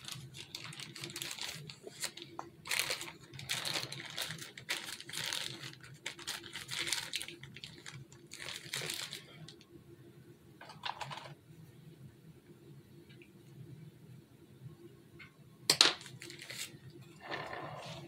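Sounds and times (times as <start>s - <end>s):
plastic piping bag crinkling: 0.0s - 9.6s, 16.0s - 16.8s.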